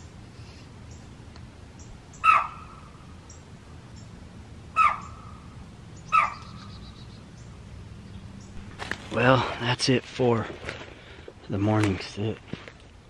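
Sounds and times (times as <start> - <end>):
deer alarm calls: 1.8 - 3.4, 4.7 - 7.4.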